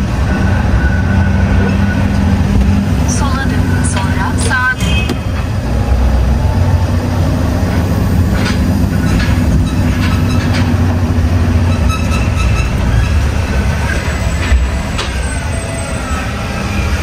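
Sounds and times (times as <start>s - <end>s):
diesel truck engine running: 0.0s - 17.0s.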